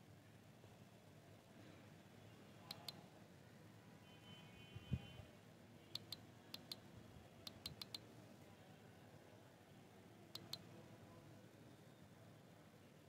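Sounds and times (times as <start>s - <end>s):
computer keys clicking: 2.7s - 3.0s, 6.0s - 6.8s, 7.4s - 8.0s, 10.4s - 10.6s.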